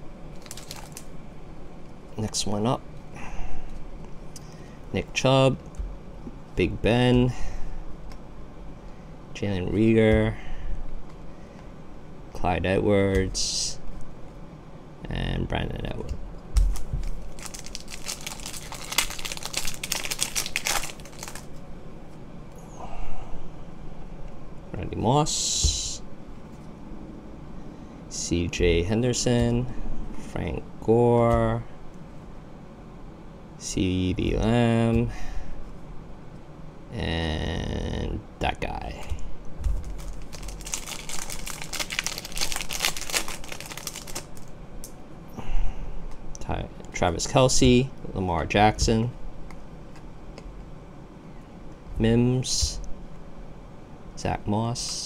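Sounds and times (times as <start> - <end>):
foil wrapper crinkling: 0.3 - 1.1, 16.6 - 21.6, 39.7 - 44.5.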